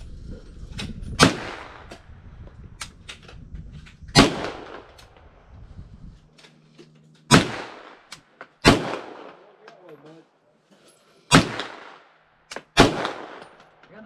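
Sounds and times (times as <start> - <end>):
gunshots: 1.2 - 1.9, 4.2 - 5.0, 7.3 - 9.8, 11.3 - 14.0.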